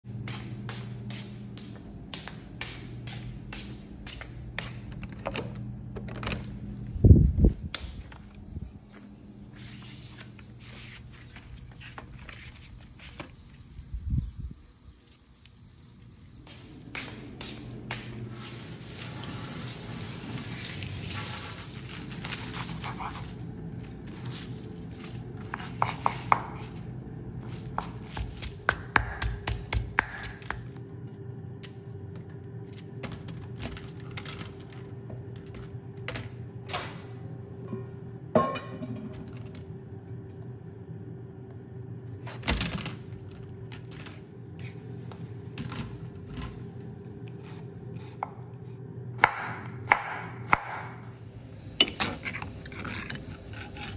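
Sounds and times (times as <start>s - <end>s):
faint steady hum: 0.1s - 53.9s
insects chirping: 6.9s - 21.8s
pestle pounding in stone mortar: 27.8s - 30.6s.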